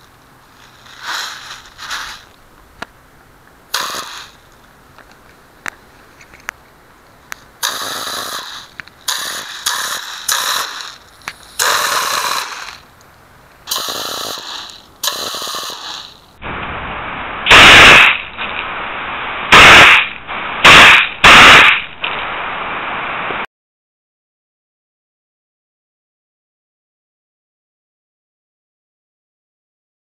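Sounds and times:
compressed air bursts: 0.6 - 2.4, 3.7 - 4.5, 7.6 - 12.9, 13.6 - 23.4
loud blasts: 0.7 - 2.3, 3.7 - 4.5, 7.6 - 12.9, 13.6 - 23.5.

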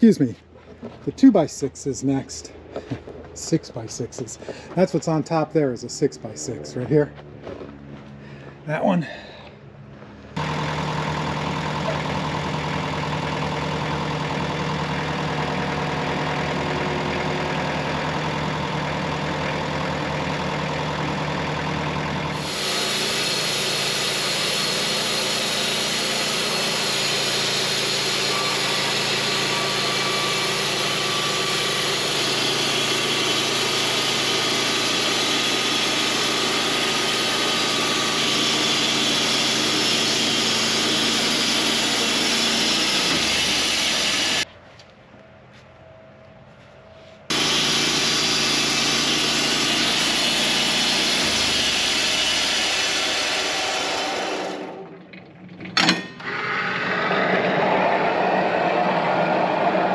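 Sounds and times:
sawmill engine running: 0.0 - 44.5, 47.3 - 59.9
band saw blade cutting log: 10.4 - 44.4, 47.3 - 54.8.

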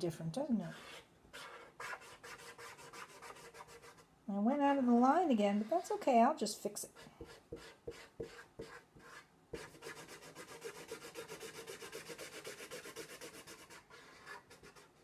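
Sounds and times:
marker scribbling on paper: 0.7 - 4.0, 6.9 - 15.0.

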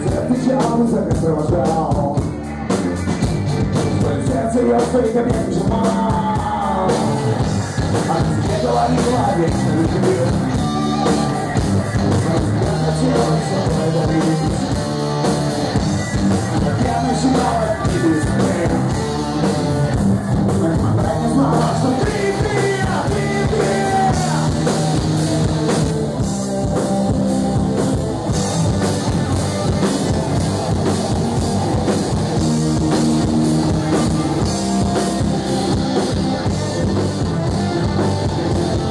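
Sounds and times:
man singing: 0.0 - 2.5, 3.8 - 15.0, 15.7 - 25.8, 36.4 - 38.9
bass guitar: 0.0 - 38.9
drum kit: 0.0 - 38.9
electric guitar: 0.0 - 38.9.

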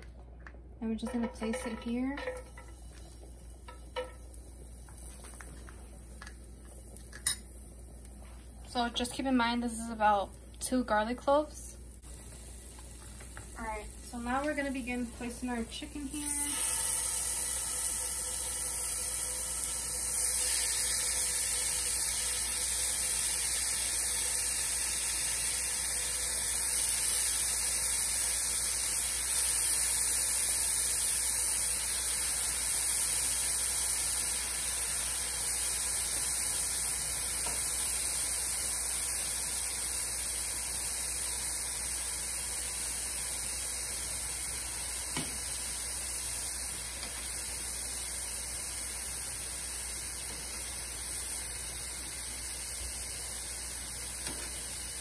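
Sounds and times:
low steady hum: 0.0 - 27.3
chicken sizzling in hot oil: 8.8 - 55.0.

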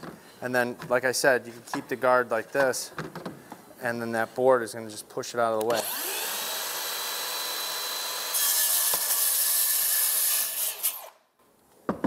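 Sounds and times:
circular saw cutting siding: 5.7 - 11.2.

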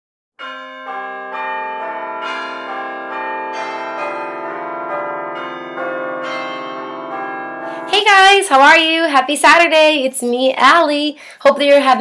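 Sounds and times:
bell-like chimes ringing: 0.4 - 9.1.

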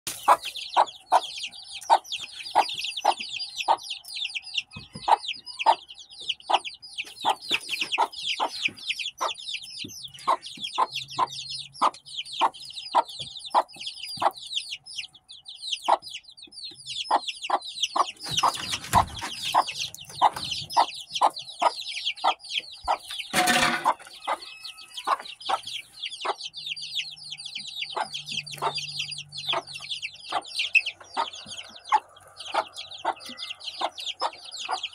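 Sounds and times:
chicken clucking: 0.1 - 34.9
chicks peeping: 0.1 - 34.9
chicken squawk: 17.1 - 26.5.

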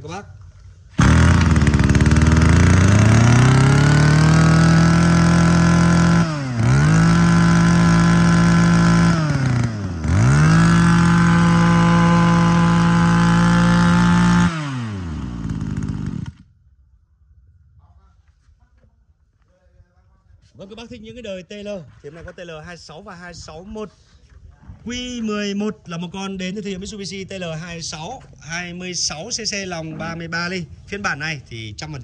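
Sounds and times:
brush cutter engine revving: 1.0 - 16.5.

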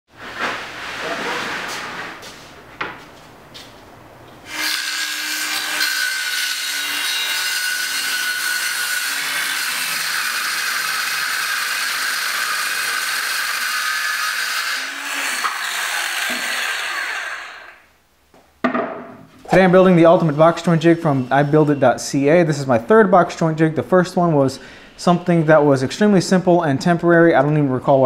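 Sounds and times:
circular saw cutting plywood: 4.5 - 17.8, 19.6 - 21.9
knock: 18.6 - 19.2.

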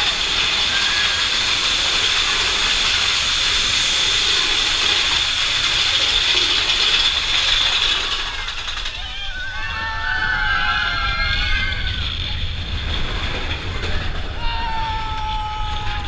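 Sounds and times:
hissing: 0.0 - 9.0
roller coaster train clatter: 0.0 - 16.0.

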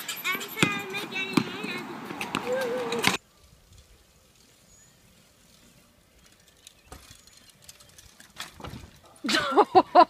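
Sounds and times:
bicycle rolling over dirt: 3.2 - 9.2.

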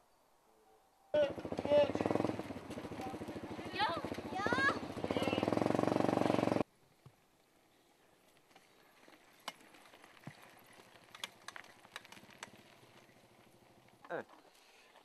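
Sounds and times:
bike tyres crunching on dirt: 1.4 - 15.0
bike clicks and rattles: 8.3 - 15.0.

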